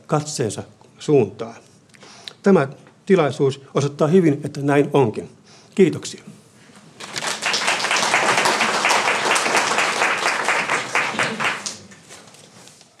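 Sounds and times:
audience applauding: 0:07.0 - 0:12.1.

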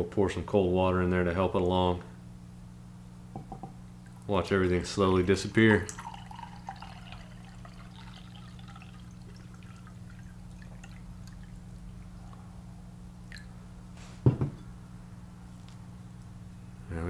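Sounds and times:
water trickling into a mug: 0:05.1 - 0:12.4
water dripping: 0:05.2 - 0:12.4, 0:13.2 - 0:13.6
loud short thump: 0:14.0 - 0:14.6.

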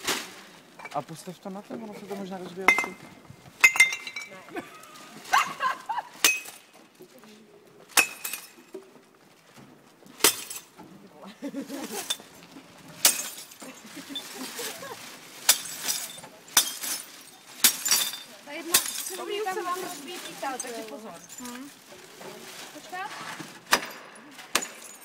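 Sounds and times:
glass bottles clinking in a bin: 0:00.7 - 0:01.1, 0:01.8 - 0:04.7, 0:06.2 - 0:06.8, 0:07.9 - 0:09.0, 0:11.7 - 0:14.8, 0:15.4 - 0:21.9, 0:23.7 - 0:25.0
glass breaking: 0:02.7 - 0:03.0, 0:03.6 - 0:04.4, 0:06.2 - 0:06.8, 0:07.9 - 0:08.8, 0:10.2 - 0:10.8, 0:13.0 - 0:14.3, 0:15.4 - 0:21.5, 0:23.7 - 0:25.0.

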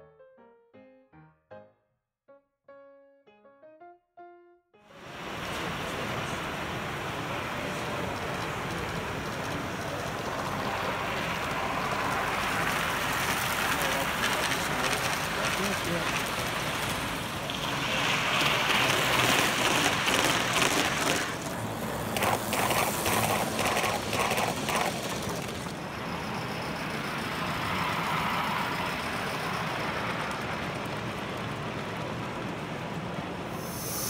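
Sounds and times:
model train wheels rumbling: 0:05.0 - 0:34.0
regular quick clicks: 0:18.7 - 0:21.5, 0:22.1 - 0:25.7.

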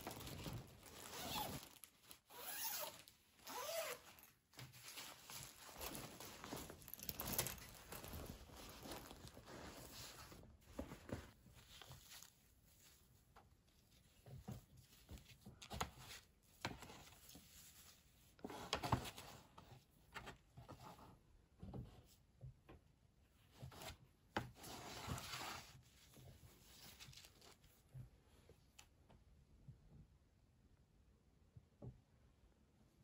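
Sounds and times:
cloth rustling: 0:00.0 - 0:18.1, 0:24.6 - 0:28.0.

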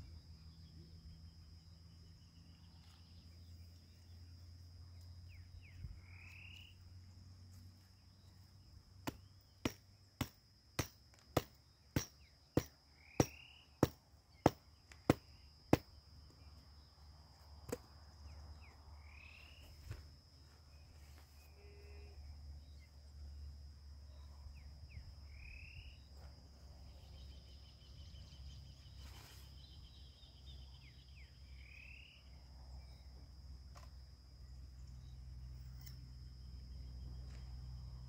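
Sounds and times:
insect droning: 0:00.0 - 0:38.0
bird chirping: 0:26.8 - 0:33.0.

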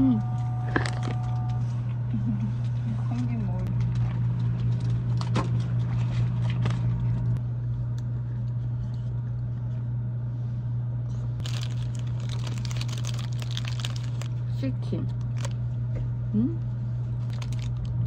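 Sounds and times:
steady low hum: 0:00.0 - 0:18.0
packaging crinkling and rustling: 0:11.4 - 0:14.4, 0:15.1 - 0:15.6, 0:17.2 - 0:18.0.

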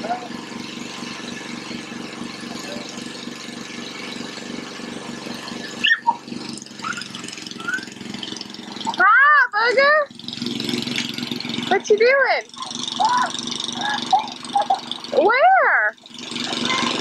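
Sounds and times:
lawn mower engine running: 0:00.0 - 0:17.0
toddler squealing: 0:05.8 - 0:08.0, 0:12.6 - 0:14.4.

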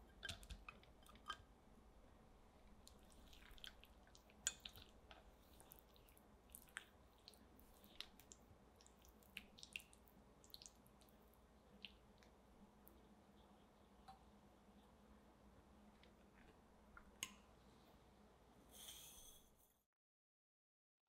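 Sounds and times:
spatula stirring chocolate: 0:02.7 - 0:11.1.

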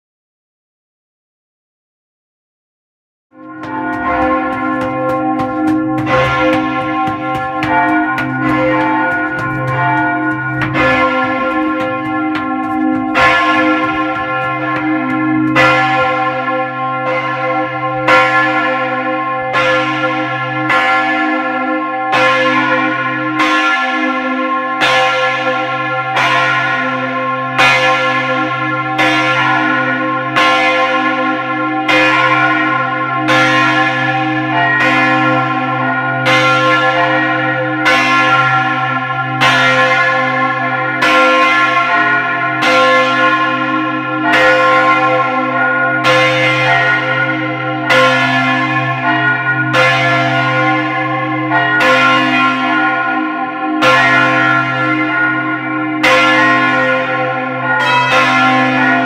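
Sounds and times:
church bells clanging: 0:03.4 - 0:59.0.

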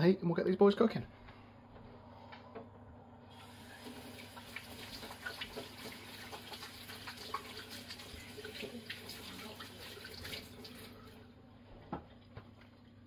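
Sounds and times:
hands being washed: 0:03.3 - 0:11.2
tap water splashing into sink: 0:03.4 - 0:10.9.

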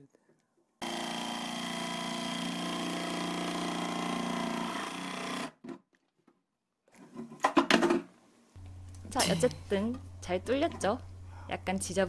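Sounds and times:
jigsaw cutting plastic: 0:00.8 - 0:05.8
plastic box knocking and clattering: 0:07.2 - 0:08.1.

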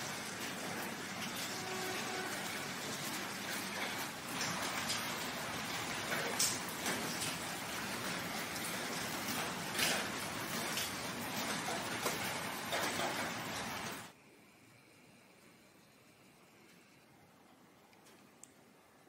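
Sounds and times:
steady rain falling: 0:00.0 - 0:14.2.

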